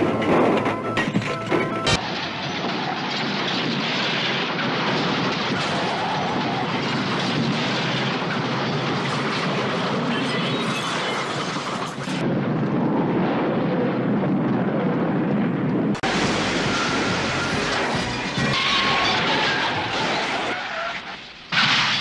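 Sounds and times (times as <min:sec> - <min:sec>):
cars rolling over and crashing: 0:00.0 - 0:10.2.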